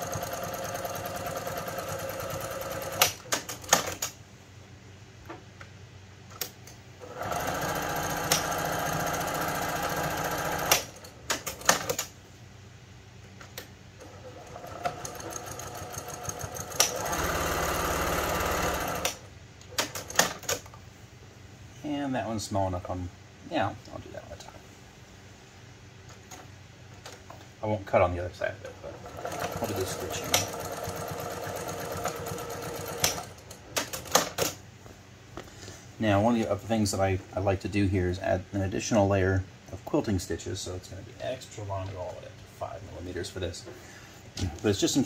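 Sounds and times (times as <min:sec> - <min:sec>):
sewing machine running: 0:00.0 - 0:03.2, 0:07.0 - 0:11.1, 0:14.0 - 0:19.2, 0:28.9 - 0:34.2.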